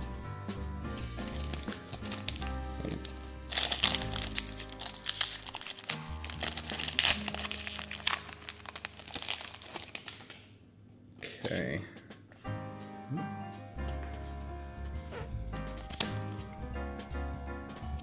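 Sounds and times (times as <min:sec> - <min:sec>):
background music: 0:00.0 - 0:10.3, 0:11.4 - 0:18.0
foil wrapper crinkling and tearing: 0:01.2 - 0:10.6.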